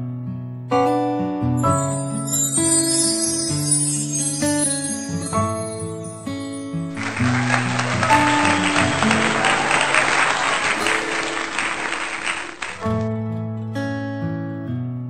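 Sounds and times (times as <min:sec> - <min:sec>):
music of plucked notes: 0:00.0 - 0:15.0
crowd applause: 0:06.9 - 0:13.1.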